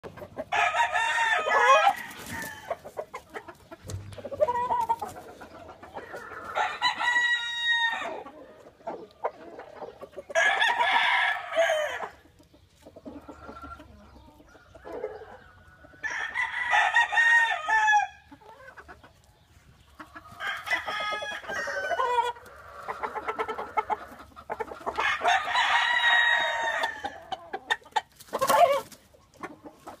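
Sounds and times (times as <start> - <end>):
soft chicken calls: 0.0 - 30.0
rooster crowing: 0.5 - 2.8, 6.3 - 8.2, 10.4 - 12.1, 20.4 - 23.1, 25.0 - 27.2.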